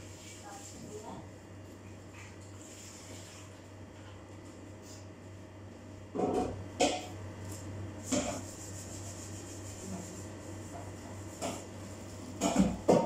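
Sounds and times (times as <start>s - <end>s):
steady low hum: 0.0s - 13.0s
bowl rubbing and scraping: 8.0s - 12.5s.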